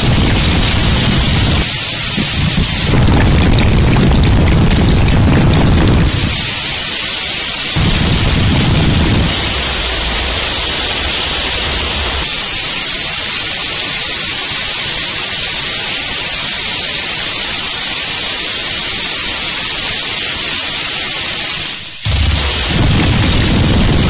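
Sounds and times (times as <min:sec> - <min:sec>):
low rumble: 0:00.0 - 0:06.3, 0:07.8 - 0:12.4, 0:22.0 - 0:24.0
harsh static hiss noise music: 0:00.0 - 0:24.0.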